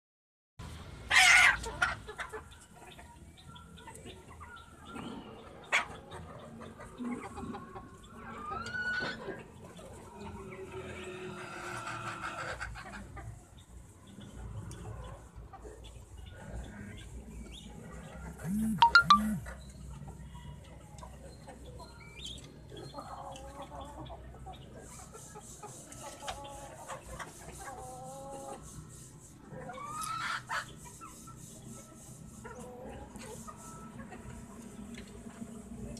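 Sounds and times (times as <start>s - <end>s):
hens clucking and calling: 5.5s - 13.4s, 18.3s - 19.6s, 29.5s - 31.2s
fast high-pitched chirr: 18.4s - 19.5s.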